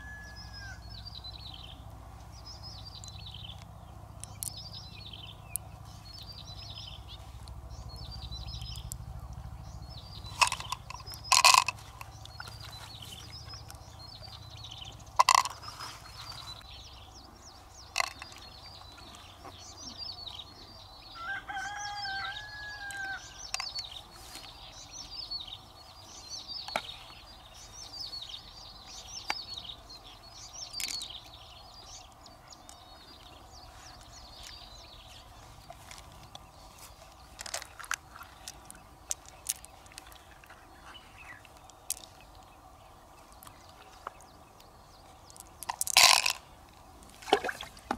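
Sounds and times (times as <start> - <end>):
rooster crowing: 0.0 - 1.0, 21.2 - 23.4
small birds chirping: 0.0 - 47.9.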